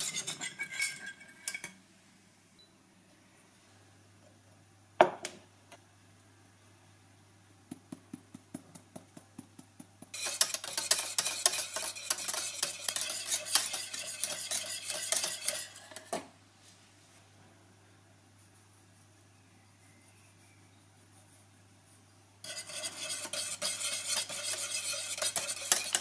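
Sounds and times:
utensil stirring in a pot: 0.0s - 1.8s, 8.3s - 16.2s, 22.4s - 26.0s.

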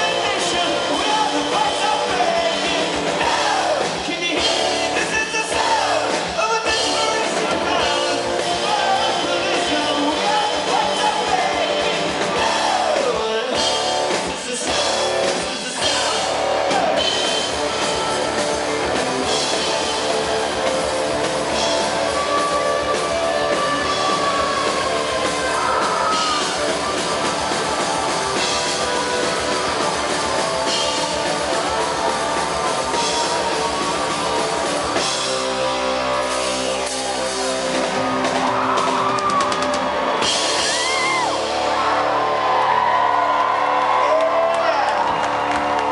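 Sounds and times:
rock band playing live: 0.0s - 45.9s.

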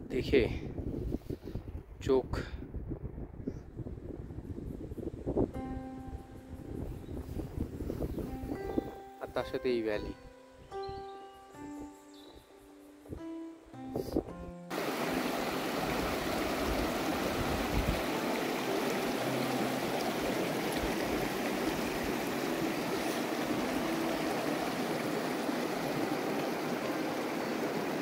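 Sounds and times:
stream rushing over rocks: 14.7s - 28.0s.

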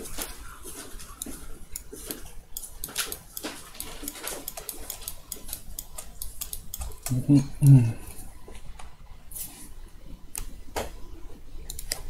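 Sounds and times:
low steady hum: 0.0s - 12.0s
mouse and keyboard clicking: 0.1s - 7.2s, 11.7s - 12.0s.

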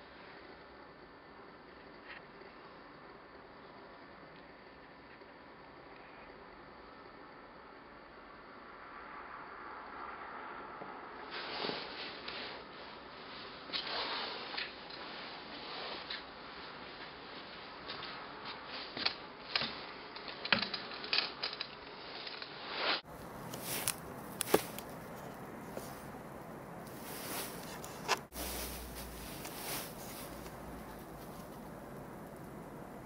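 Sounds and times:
steady hiss: 0.0s - 33.0s
camera handling rustles: 23.2s - 26.2s, 26.9s - 31.6s.

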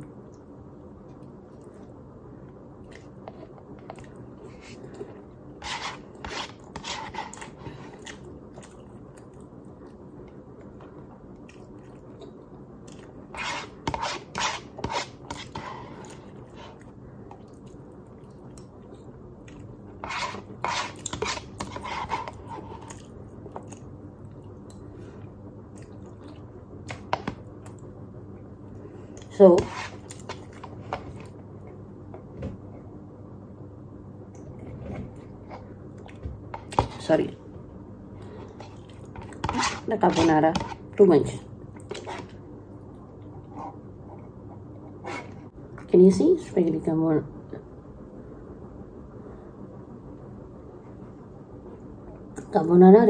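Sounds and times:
utensil scraping in cup: 5.6s - 7.8s, 13.3s - 16.8s, 20.0s - 22.9s, 29.6s - 30.3s, 39.2s - 40.8s
person chewing: 6.1s - 13.3s, 16.0s - 24.9s, 25.7s - 27.0s, 38.2s - 39.6s.

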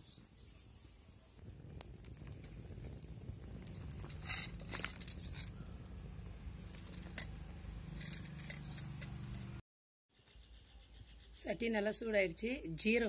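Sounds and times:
fire crackles: 0.6s - 9.6s
wood fire rumbling: 1.4s - 9.6s.

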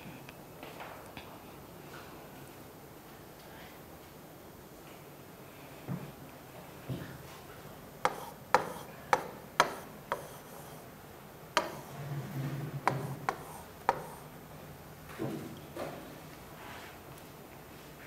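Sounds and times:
pen tapping on display screen: 8.0s - 10.6s, 11.6s - 12.0s, 12.8s - 14.3s.

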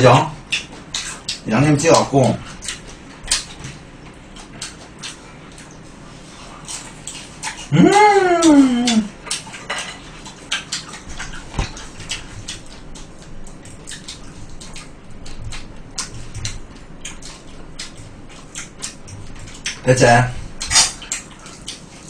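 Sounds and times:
people chewing crisp food: 0.2s - 22.0s
person humming: 7.7s - 9.1s.

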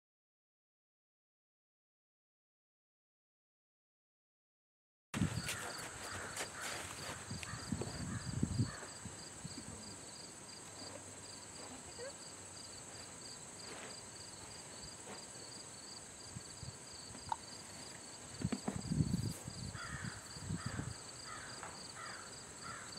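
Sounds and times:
insect chorus buzzing: 5.2s - 22.9s
pulsing insect chirp: 5.2s - 22.9s.

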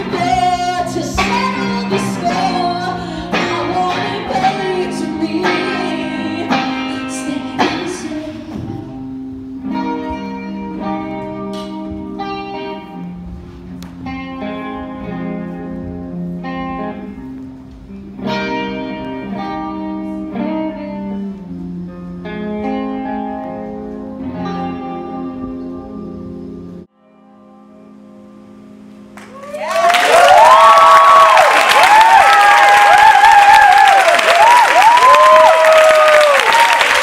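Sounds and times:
guitar playing slow chords: 0.0s - 29.3s.

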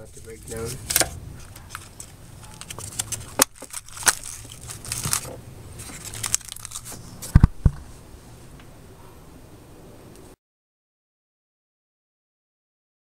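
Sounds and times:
hand tools clicking and scraping: 0.0s - 7.4s.

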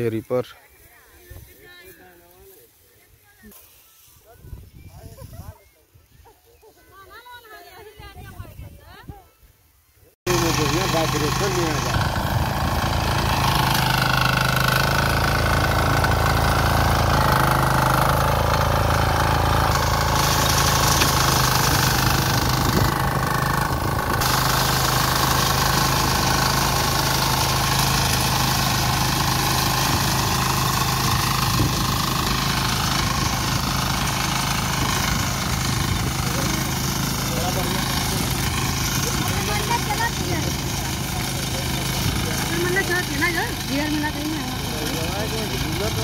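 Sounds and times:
brush-cutter engine running: 10.3s - 46.0s.

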